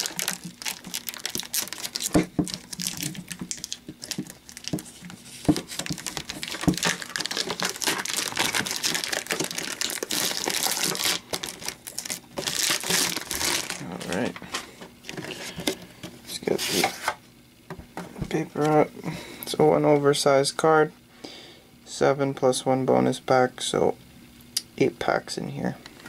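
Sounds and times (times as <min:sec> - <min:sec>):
plastic wrap crinkling: 0:00.0 - 0:15.8.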